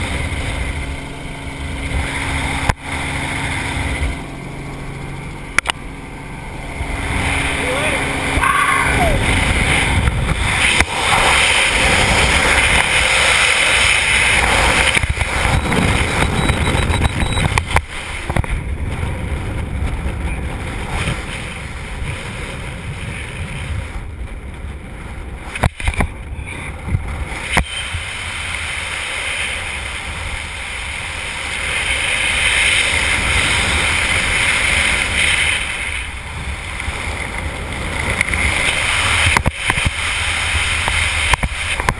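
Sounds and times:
wind rushing over microphone: 0.0s - 41.9s.

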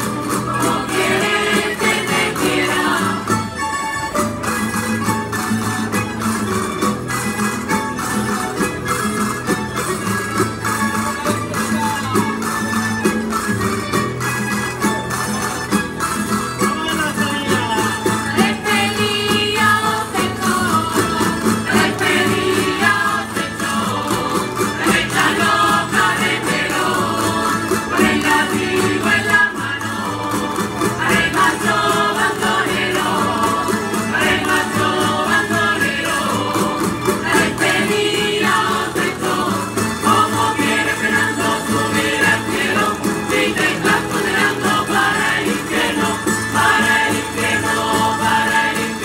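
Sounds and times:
people singing: 0.0s - 3.6s, 16.8s - 49.0s
guitars playing dance tune: 0.0s - 49.0s.

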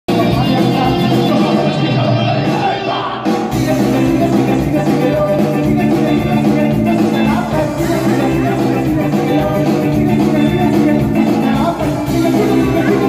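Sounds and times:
loud amplified music: 0.1s - 13.0s
man singing into microphone: 0.1s - 13.0s.

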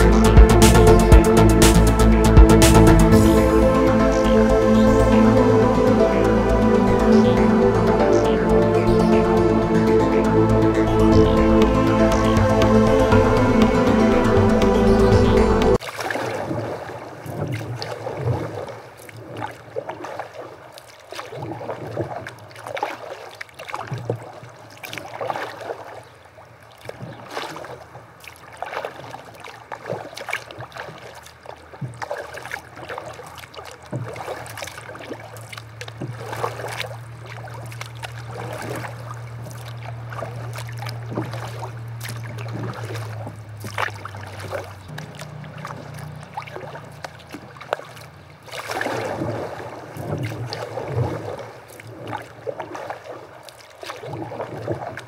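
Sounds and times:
steady low hum: 0.0s - 15.8s
kayak paddles splashing: 0.0s - 55.0s.

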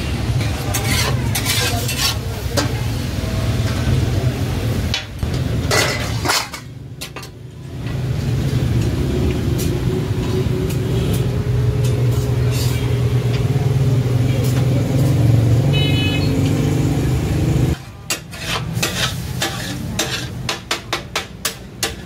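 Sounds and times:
food sizzling on griddle: 18.3s - 20.4s.

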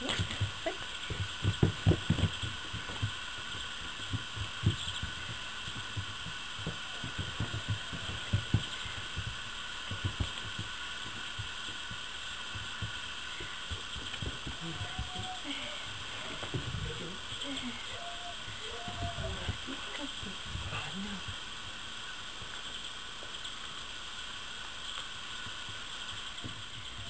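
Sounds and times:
puppies thudding on wood shavings: 0.0s - 20.1s
steady background hiss: 0.0s - 27.0s.

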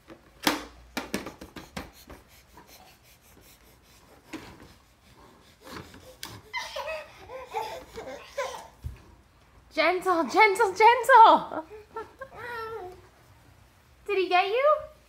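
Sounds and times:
toddler babbling: 12.3s - 13.0s.

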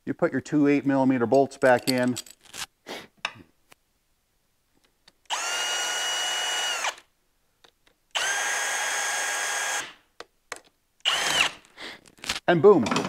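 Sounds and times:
cordless drill whine: 5.3s - 7.1s, 8.2s - 10.0s, 11.0s - 11.6s.

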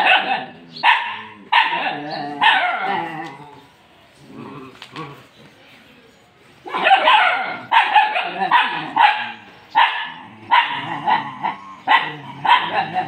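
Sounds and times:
young dog barking: 0.0s - 2.9s, 6.7s - 11.2s, 11.9s - 13.0s.

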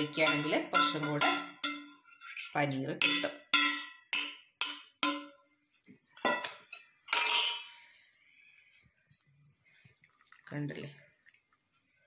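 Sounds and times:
metal kitchenware knocking: 0.0s - 2.0s, 3.0s - 5.4s, 6.2s - 7.8s.

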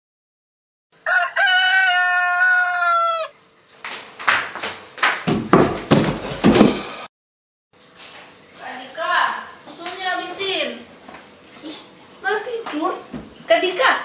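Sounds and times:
rooster crowing: 1.0s - 3.4s
scuffles and thumps: 3.8s - 6.9s.

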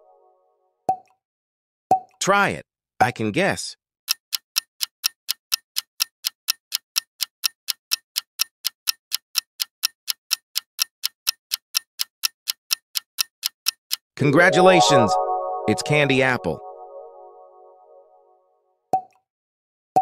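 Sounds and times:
clock-like ticking: 4.1s - 15.6s.

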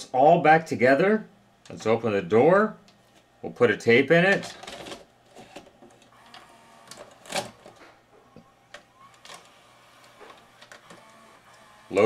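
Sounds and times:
tape deck mechanical clicks and clunks: 4.3s - 12.0s.

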